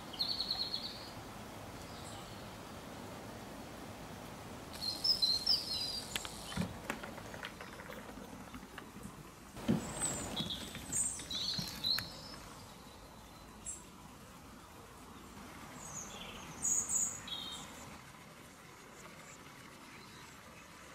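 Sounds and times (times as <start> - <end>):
small songbird chirping: 0.0 - 2.6, 4.7 - 6.6, 9.6 - 13.9, 15.1 - 17.9
faint outdoor background noise: 0.0 - 20.9.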